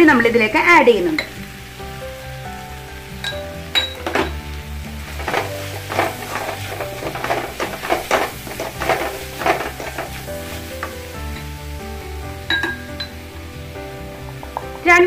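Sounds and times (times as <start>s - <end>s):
background music: 0.0s - 15.0s
food sizzling: 0.0s - 15.0s
spatula scraping a wok: 3.9s - 11.5s.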